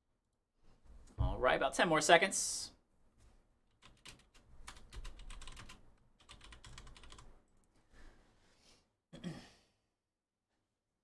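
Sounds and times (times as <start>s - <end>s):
keyboard typing: 3.7s - 7.6s.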